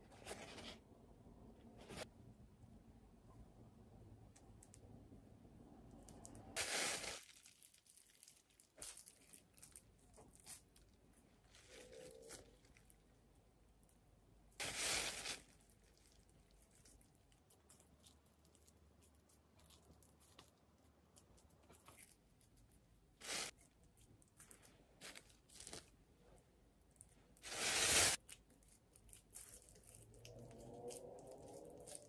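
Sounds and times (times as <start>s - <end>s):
plastic wrap crinkling: 6.2s - 13.0s, 14.6s - 18.6s, 27.4s - 32.0s.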